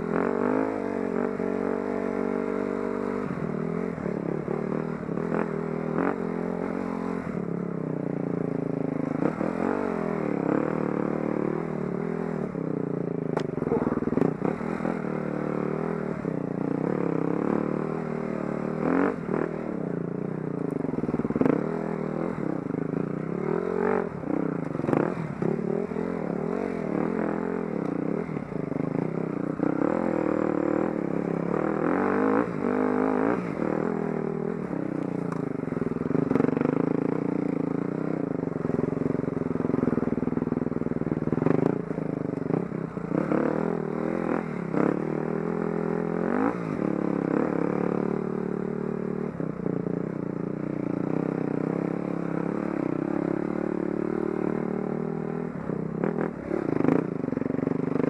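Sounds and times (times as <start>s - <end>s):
dirt bike engine revving: 8.4s - 12.6s, 13.6s - 19.9s, 21.0s - 48.4s.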